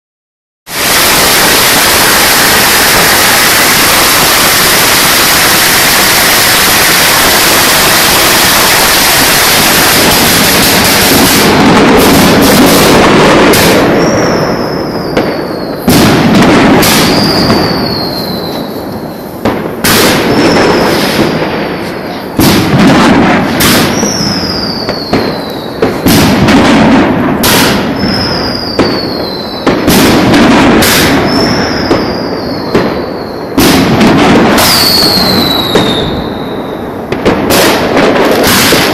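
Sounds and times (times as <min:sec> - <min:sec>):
falling firework whistle: 0:00.7 - 0:38.9
firecrackers crackling: 0:00.7 - 0:38.9.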